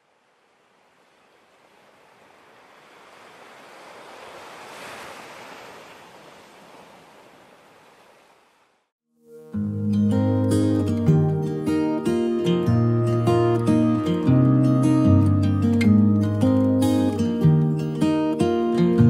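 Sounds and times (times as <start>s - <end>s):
sea surf rushing: 0.0s - 8.8s.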